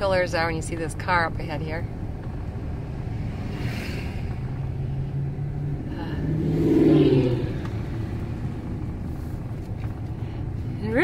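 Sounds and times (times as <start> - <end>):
truck engine and road hum: 0.0 - 11.0.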